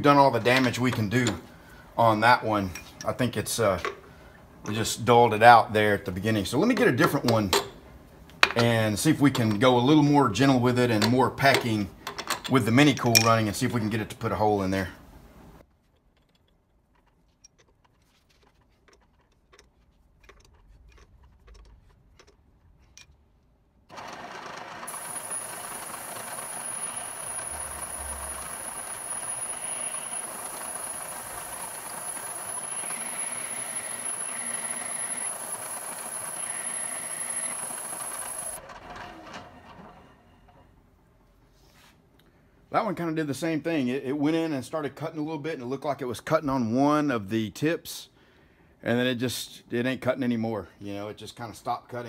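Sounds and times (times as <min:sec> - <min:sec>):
hole saw cutting steel: 0:23.9 - 0:39.2
milling machine whine: 0:23.9 - 0:40.6.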